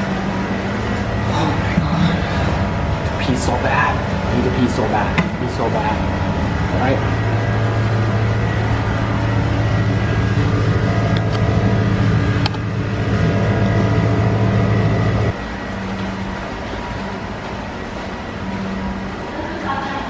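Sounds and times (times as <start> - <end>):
loud machine hum: 0.0 - 20.0.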